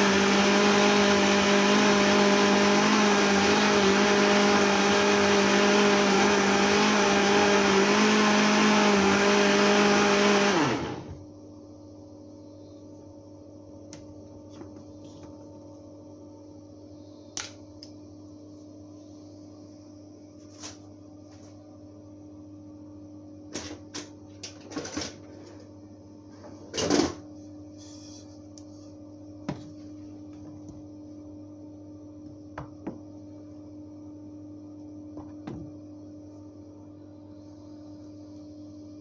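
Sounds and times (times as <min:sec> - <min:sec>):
steady low hum: 0:11.2 - 0:23.6, 0:25.2 - 0:39.0.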